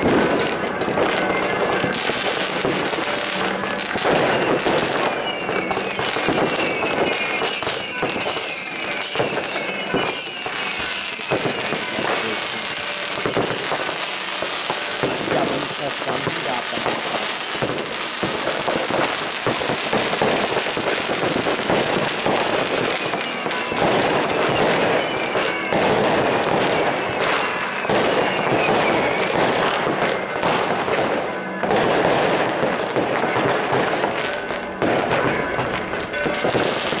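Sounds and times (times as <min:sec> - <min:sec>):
fireworks crackling and banging: 0:00.0 - 0:37.0
firework whistle sliding down: 0:01.1 - 0:30.2.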